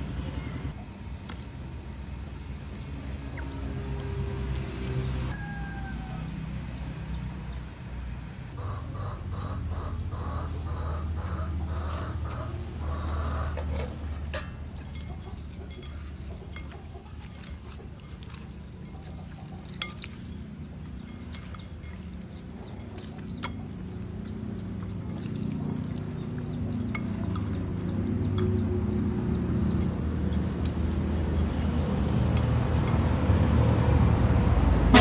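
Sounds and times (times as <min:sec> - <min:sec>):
hand rubbing fish in bowl: 0:13.3 - 0:33.5
sharp clinks against ceramic bowl: 0:14.2 - 0:24.0, 0:24.8 - 0:31.0, 0:32.0 - 0:33.2.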